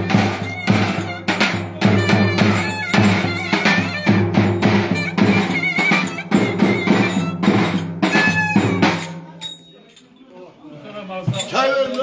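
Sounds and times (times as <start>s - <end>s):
clarinet melody: 0.0s - 9.0s
big drum beating steady rhythm: 0.0s - 9.6s.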